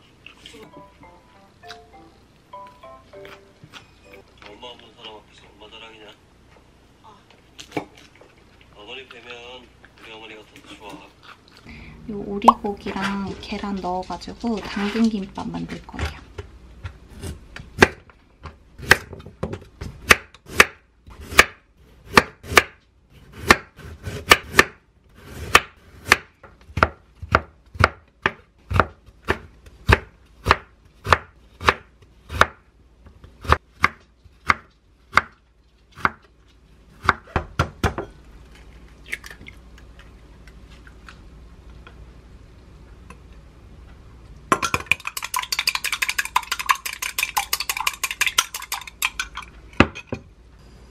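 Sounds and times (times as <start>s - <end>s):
chopsticks beating egg in glass bowl: 44.7s - 49.5s.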